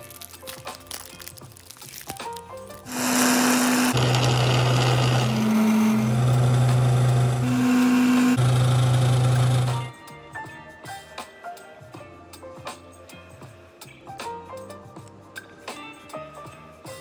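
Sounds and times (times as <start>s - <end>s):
soft background music: 0.0s - 2.8s, 9.6s - 17.0s
coffee machine pump buzzing: 2.9s - 9.9s.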